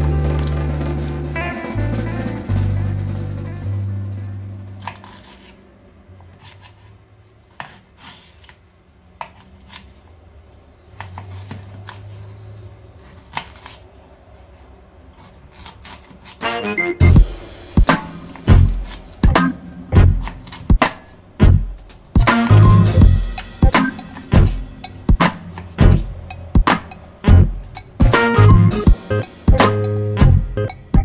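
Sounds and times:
background music: 0:00.0 - 0:05.5, 0:16.4 - 0:31.0.

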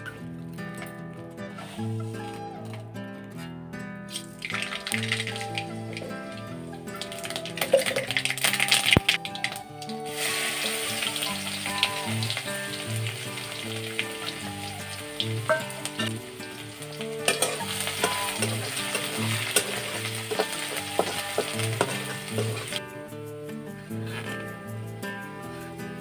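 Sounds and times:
background music: 0:00.0 - 0:26.0
food sizzling in pan: 0:04.1 - 0:22.8
metal spatula scraping pan: 0:17.1 - 0:22.8.

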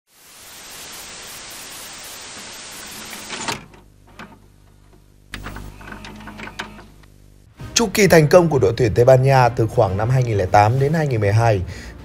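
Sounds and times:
static hiss: 0:00.1 - 0:03.8.

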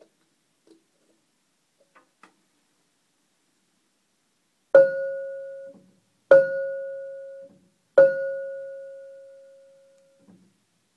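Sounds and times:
metallic bell-like piano notes: 0:04.8 - 0:09.6.

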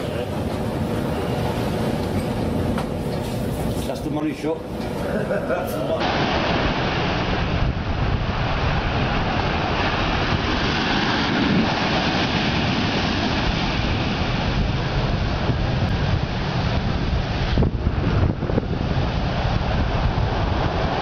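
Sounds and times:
wind rumbling on microphone: 0:04.6 - 0:21.0
surf breaking on a beach: 0:05.0 - 0:21.0.

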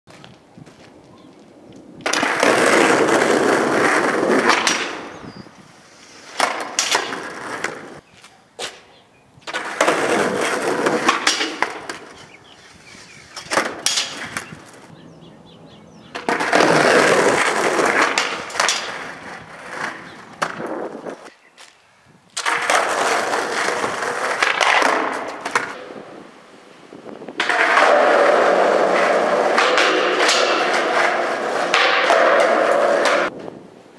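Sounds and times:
skateboard wheels rolling on concrete: 0:00.1 - 0:33.9
skateboard clacking on ground: 0:01.8 - 0:05.3, 0:06.2 - 0:08.0, 0:08.6 - 0:12.4, 0:13.3 - 0:14.9, 0:16.1 - 0:21.3, 0:22.4 - 0:26.1, 0:27.3 - 0:33.6.

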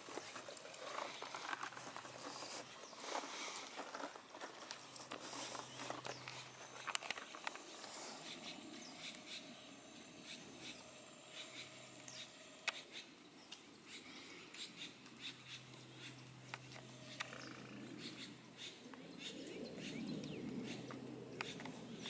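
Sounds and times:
faint low hum: 0:00.0 - 0:22.0
small clicks and ticks: 0:03.7 - 0:09.6, 0:10.2 - 0:12.9.

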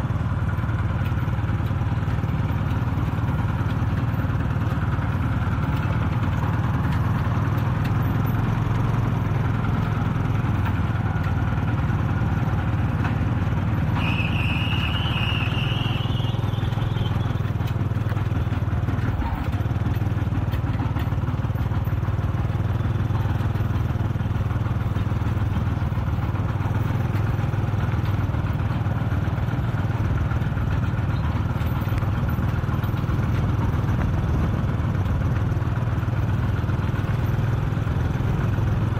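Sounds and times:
diesel tractor engine running: 0:00.0 - 0:38.9
high squeal rising in pitch: 0:14.0 - 0:17.3.

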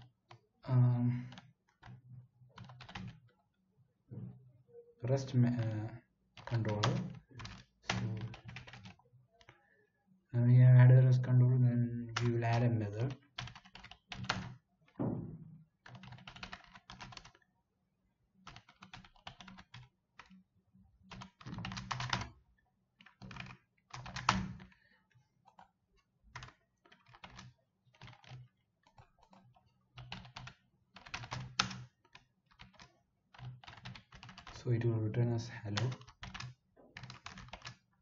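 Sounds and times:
keyboard typing: 0:01.1 - 0:03.3, 0:05.1 - 0:05.8, 0:06.4 - 0:09.6, 0:12.1 - 0:17.4, 0:18.4 - 0:20.4, 0:21.0 - 0:22.4, 0:23.0 - 0:24.8, 0:25.5 - 0:25.7, 0:26.3 - 0:34.6, 0:35.2 - 0:37.9.

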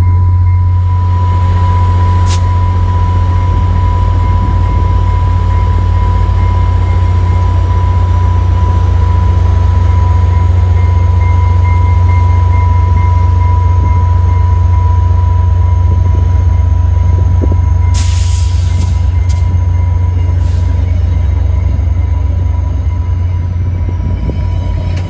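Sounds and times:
train rolling past: 0:00.0 - 0:25.0.

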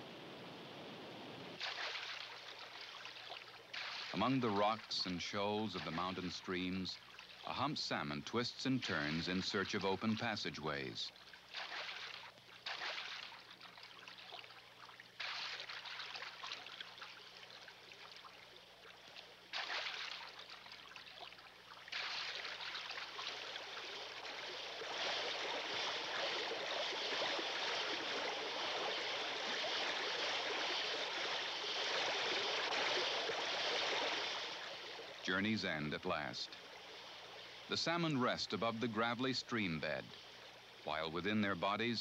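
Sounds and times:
stream rushing over rocks: 0:22.0 - 0:36.4.

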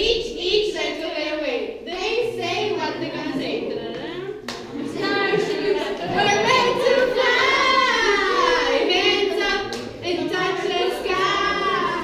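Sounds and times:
children singing together: 0:04.7 - 0:12.0.

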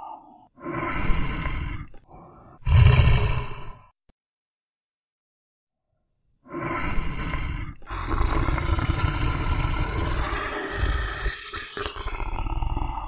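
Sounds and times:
lion roaring: 0:06.9 - 0:13.0.

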